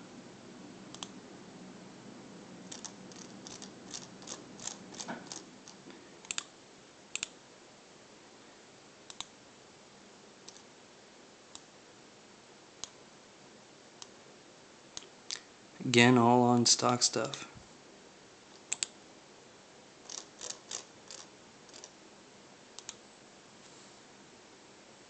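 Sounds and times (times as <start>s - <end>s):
computer mouse buttons clicking: 0.9s - 1.2s, 2.7s - 6.5s, 9.1s - 9.3s, 18.6s - 18.9s, 20.1s - 21.9s, 22.8s - 23.0s.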